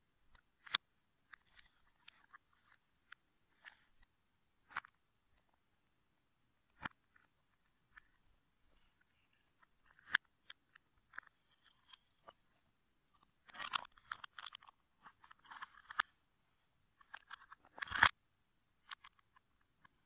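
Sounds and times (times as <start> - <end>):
plastic bricks clicking and snapping: 0.3 - 4.0, 4.6 - 5.0, 9.6 - 12.0, 13.4 - 16.2, 17.0 - 18.2, 18.8 - 19.9.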